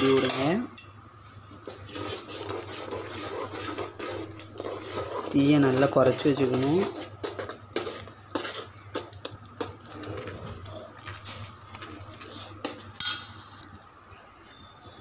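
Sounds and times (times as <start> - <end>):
steady low hum: 0.0 - 15.0
metal spoon scraping a pan: 1.6 - 10.1.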